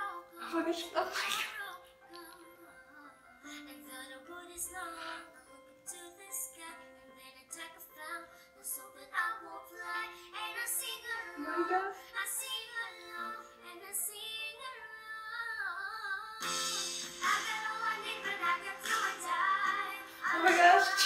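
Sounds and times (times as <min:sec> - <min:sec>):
boys singing pop song: 0:08.7 - 0:21.0
instrumental backing: 0:16.4 - 0:21.0.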